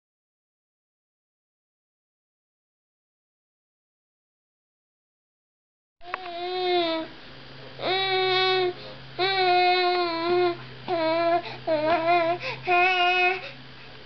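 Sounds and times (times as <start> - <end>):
baby vocalizing sing-song notes: 7.8 - 13.6
baby breathing: 10.9 - 13.6.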